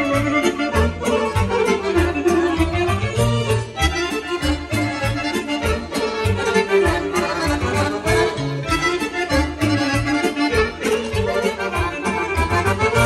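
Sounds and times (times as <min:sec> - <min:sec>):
button accordion melody: 0:00.0 - 0:13.0
electronic keyboard: 0:00.0 - 0:13.0.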